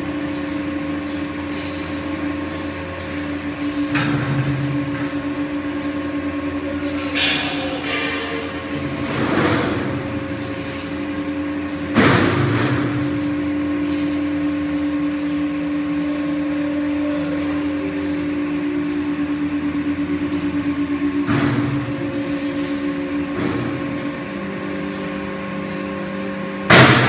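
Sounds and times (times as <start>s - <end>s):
hydraulic power unit humming: 0.0s - 27.0s.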